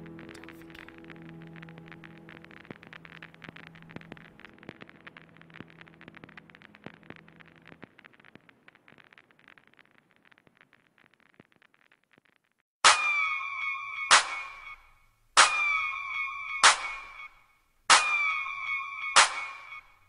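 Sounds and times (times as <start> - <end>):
held music notes: 0.0 - 4.4.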